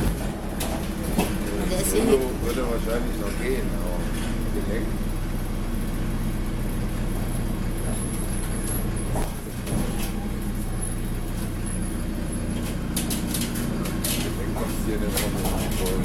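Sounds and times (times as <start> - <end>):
bus engine low drone: 0.0 - 16.0.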